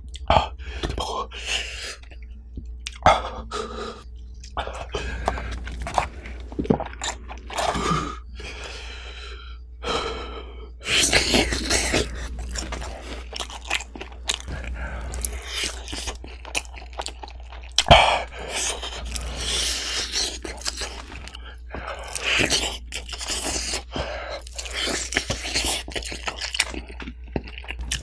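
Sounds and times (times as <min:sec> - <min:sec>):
crispy bites and wet chewing: 0:04.2 - 0:07.9, 0:10.9 - 0:28.0.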